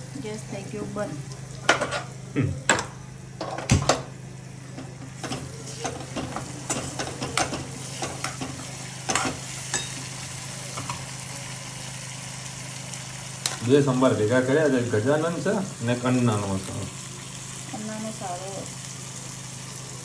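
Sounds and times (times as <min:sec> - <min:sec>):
oil sizzling: 0:00.0 - 0:20.0
spoon scraping and clinking in pan: 0:05.2 - 0:10.1.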